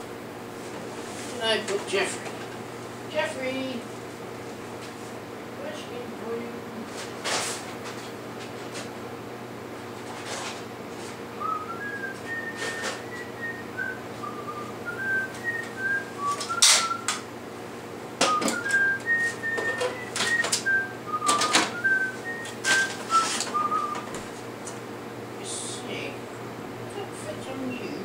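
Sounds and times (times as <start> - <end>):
person whistling a tune: 11.4 - 17.2, 18.3 - 24.1.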